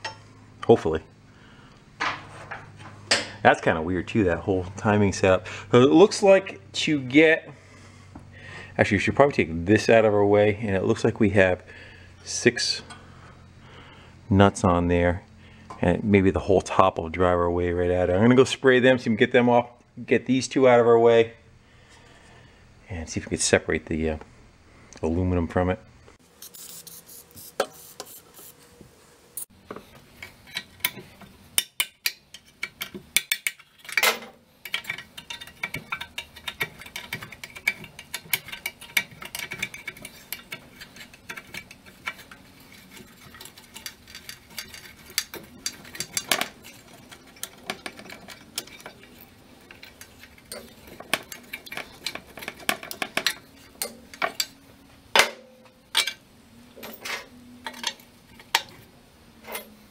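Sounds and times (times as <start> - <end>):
metal tools clicking on metal: 30.2 - 54.6.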